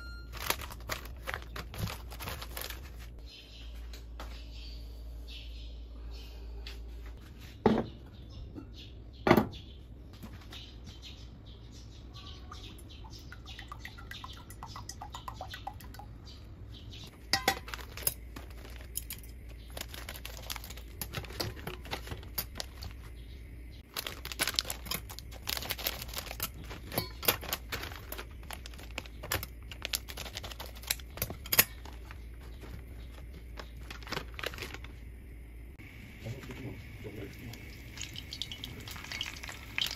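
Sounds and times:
plastic packaging crinkling and tearing: 0.3 - 3.2, 17.6 - 23.1, 23.8 - 35.1, 38.7 - 39.9
cast-iron pot knocking: 17.3 - 17.7.

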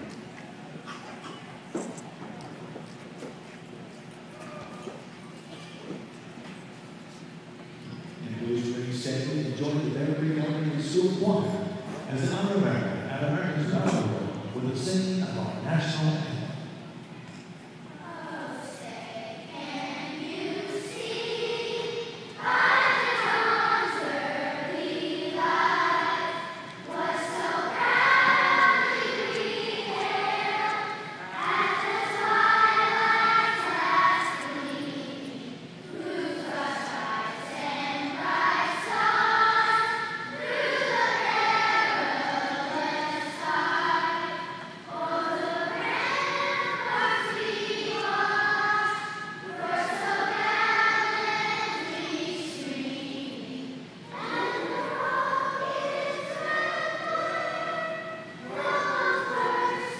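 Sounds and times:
choir singing: 18.0 - 59.9.

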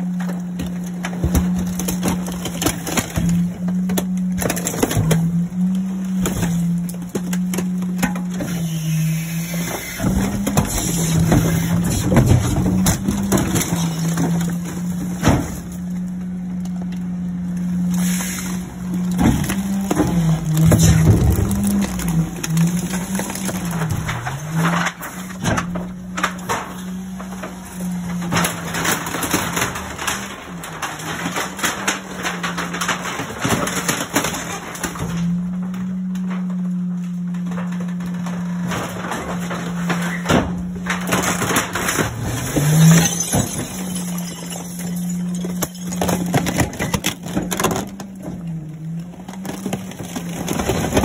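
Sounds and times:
crunching and snapping of metal: 0.0 - 51.0
hydraulic packer compacting trash: 0.0 - 51.0
truck engine and hydraulics hum: 0.0 - 51.0.

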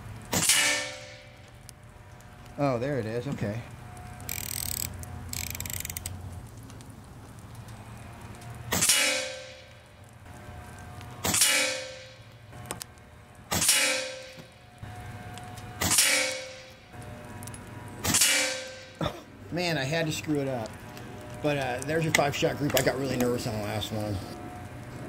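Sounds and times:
air rifle shots: 0.3 - 1.3, 8.7 - 9.6, 11.2 - 12.1, 13.5 - 14.4, 15.8 - 16.6, 18.0 - 18.9.

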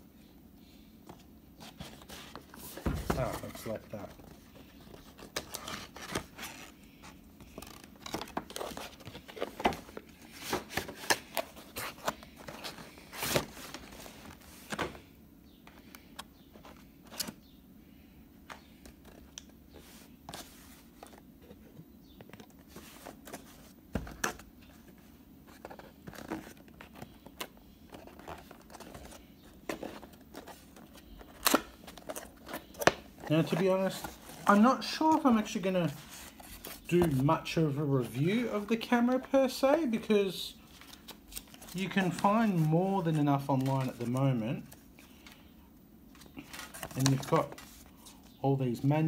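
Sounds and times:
cardboard boxes being handled: 1.2 - 15.0, 18.6 - 37.4.

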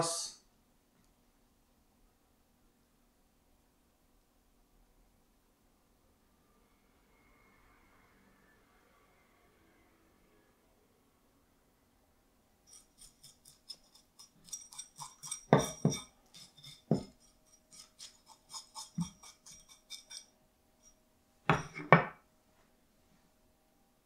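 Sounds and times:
knife scraping fish scales: 12.7 - 21.0
knife knocking on cutting board: 16.9 - 17.1.

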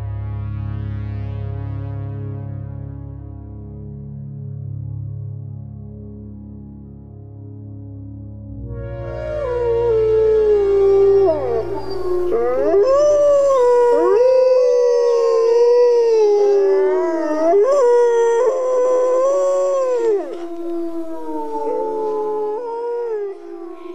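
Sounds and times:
low music drone: 0.0 - 23.9
wolves howling: 9.0 - 23.9.

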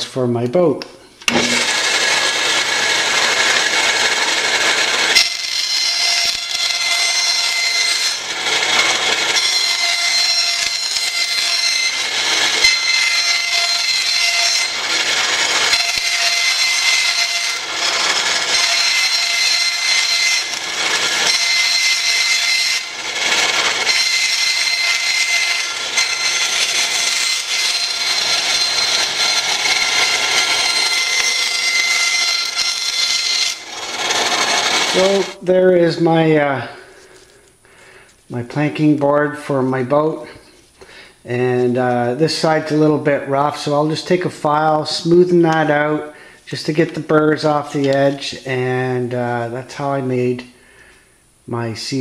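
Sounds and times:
bandsaw cutting wood: 1.2 - 35.4
bandsaw whining: 1.2 - 37.2.

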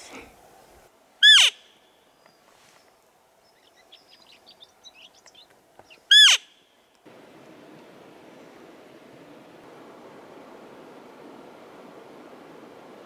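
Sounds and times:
steady hiss: 7.0 - 13.0.

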